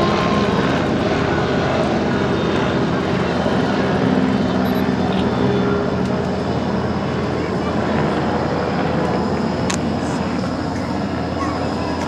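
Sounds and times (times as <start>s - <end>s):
loud engine drone: 0.0s - 12.0s.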